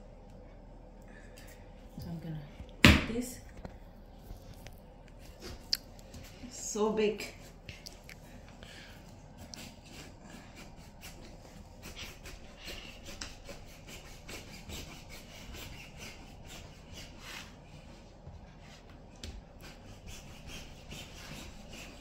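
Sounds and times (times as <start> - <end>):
knife sawing through watermelon rind: 9.4 - 17.6, 19.6 - 22.0.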